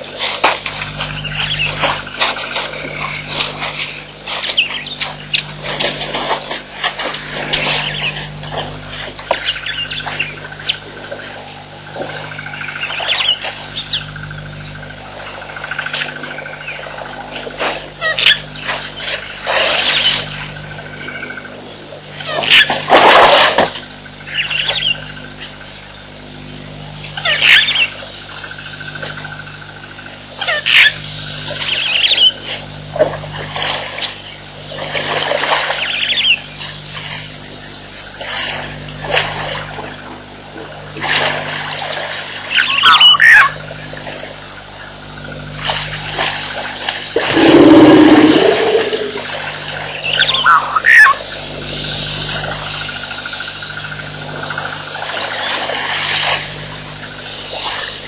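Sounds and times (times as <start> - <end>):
birds chirping: 0.9 - 5.8, 7.8 - 11.4, 23.8 - 32.4, 42.2 - 44.0, 47.2 - 51.2
harsh bird calls: 42.5 - 43.6, 47.2 - 51.2.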